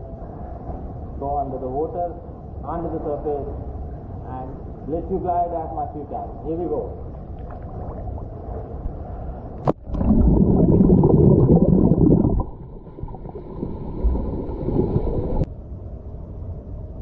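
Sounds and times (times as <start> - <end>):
underwater rushing and bubbling: 7.2 - 15.5.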